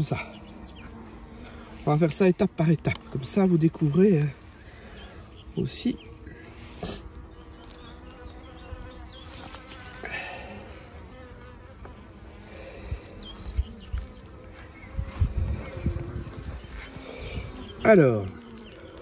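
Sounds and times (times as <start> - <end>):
honeybees buzzing: 0.0 - 19.0.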